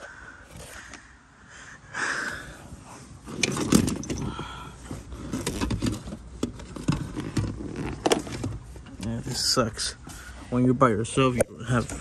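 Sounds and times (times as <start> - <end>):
hands rustling among tools: 3.0 - 10.4.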